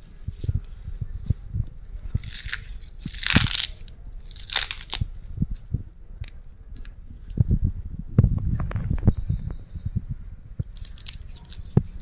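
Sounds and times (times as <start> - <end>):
leaves crackling when handled: 2.2 - 5.1, 10.6 - 12.0.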